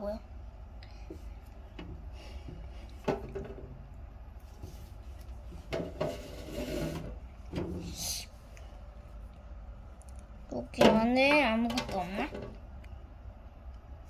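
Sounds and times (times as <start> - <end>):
egg carton scraping on table: 5.6 - 7.2.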